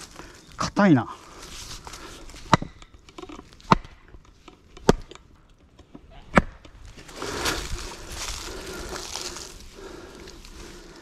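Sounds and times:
blade chopping wood: 3.6 - 4.0.

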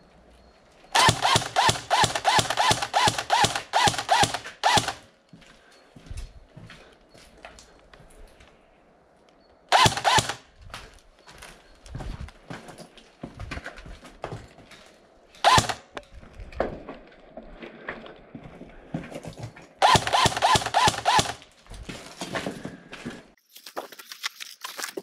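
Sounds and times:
airsoft rifle bursts: 0.9 - 5.1, 9.7 - 10.5, 15.4 - 16.0, 19.8 - 21.5
footsteps on brick rubble: 5.3 - 8.6, 10.5 - 19.8, 21.4 - 25.0.

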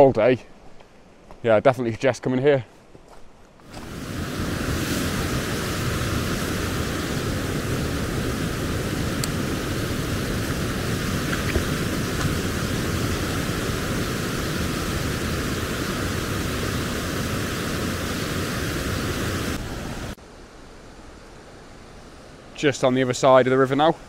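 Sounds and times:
stream rushing over boulders: 3.6 - 20.2.

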